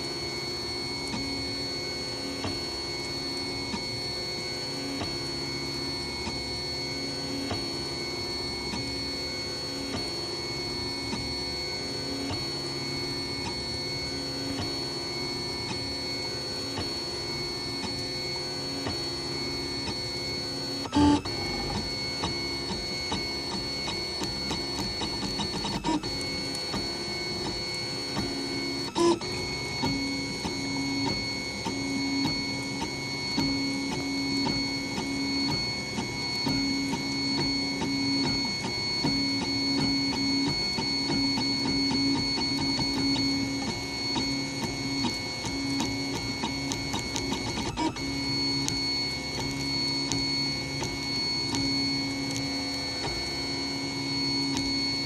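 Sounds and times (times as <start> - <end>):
stepper motors whining: 16.7 - 55.0.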